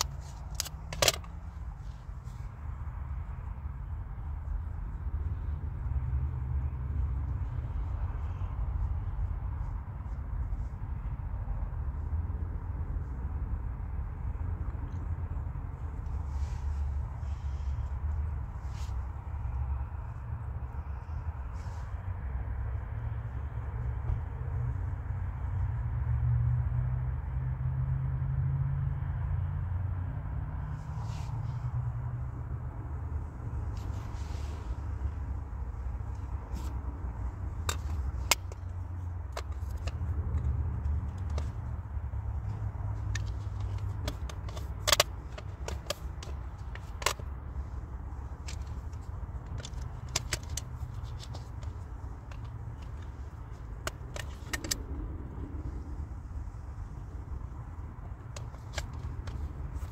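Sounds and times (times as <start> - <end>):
faint rustle: 0.0 - 13.6, 14.9 - 22.2, 30.7 - 59.9
steady low rumble: 30.7 - 59.9.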